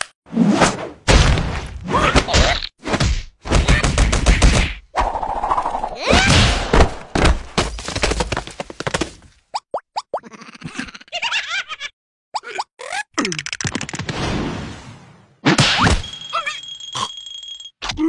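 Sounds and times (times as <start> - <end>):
cartoon hits and whacks: 15.4 - 16.2.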